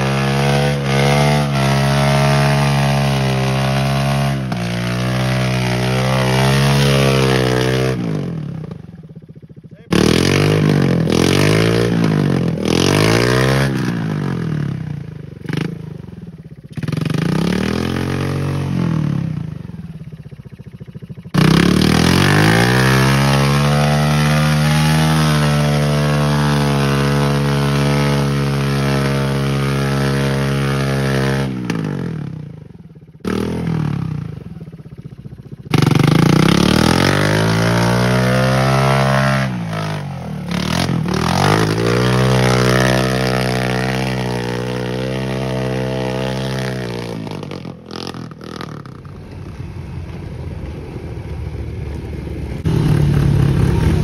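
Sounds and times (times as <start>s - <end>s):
atv engine revving: 0.0s - 54.0s
wheels spinning in mud: 0.0s - 54.0s.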